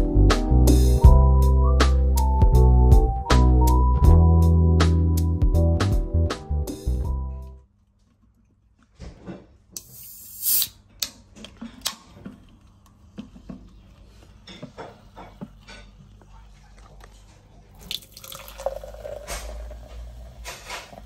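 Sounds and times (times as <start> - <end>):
drink pouring into glass: 17.8 - 21.0.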